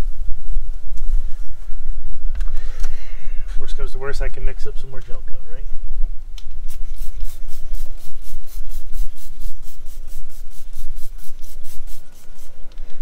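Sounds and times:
spray bottle hissing squirts: 0:06.6 - 0:12.6.

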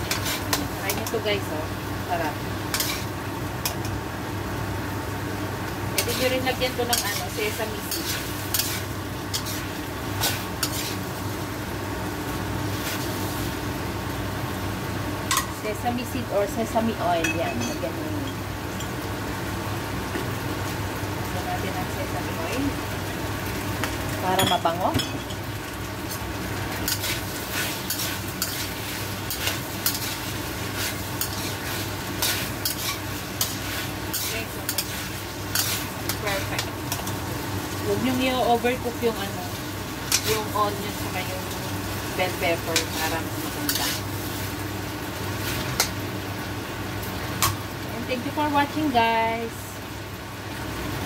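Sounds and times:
spatula scraping wok: 0:00.0 - 0:01.2, 0:02.7 - 0:03.2, 0:06.0 - 0:11.3, 0:12.7 - 0:13.5, 0:26.7 - 0:37.2, 0:40.0 - 0:44.6, 0:45.3 - 0:46.0
stir-fry sizzling: 0:00.0 - 0:51.0.

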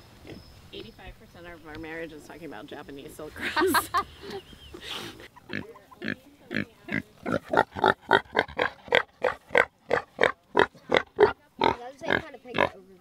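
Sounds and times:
pig grunting: 0:05.5 - 0:12.8.

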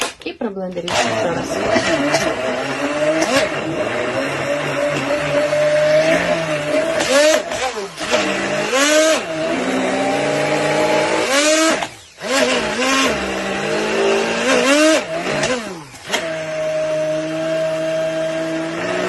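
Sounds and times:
immersion blender running: 0:00.8 - 0:19.0.

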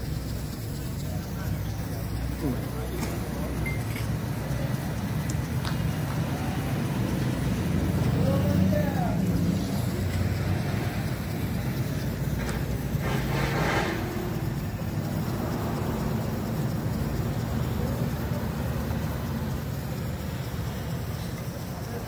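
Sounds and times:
vehicle engine rumbling: 0:00.0 - 0:22.0
brief hissing: 0:11.8 - 0:14.5.

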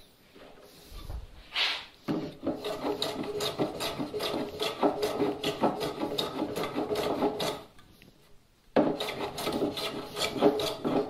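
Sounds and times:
hand rasp filing wood: 0:02.1 - 0:07.8, 0:08.8 - 0:11.0.

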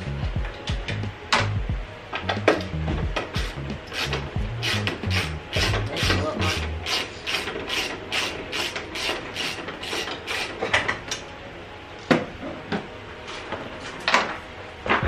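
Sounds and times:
ratchet wrench clicking: 0:03.4 - 0:10.6.

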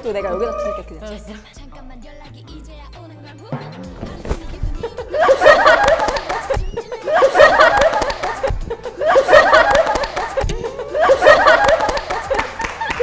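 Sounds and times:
women laughing and giggling: 0:04.8 - 0:13.0.

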